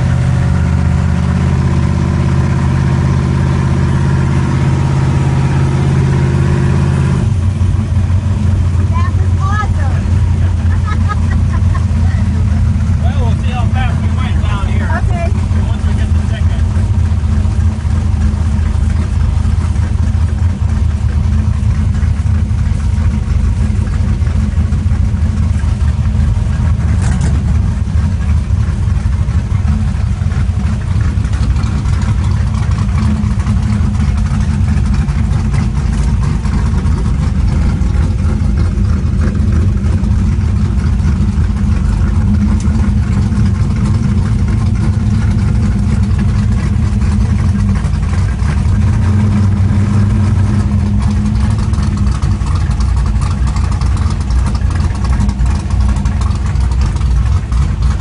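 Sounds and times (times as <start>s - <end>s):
race car engine idling: 0.0s - 58.0s.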